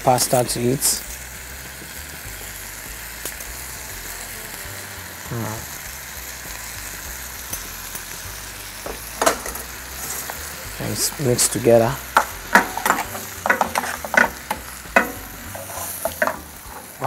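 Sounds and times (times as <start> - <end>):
vegetables sizzling in a frying pan: 0.0 - 17.0
spaghetti tossed with tongs: 12.1 - 17.0.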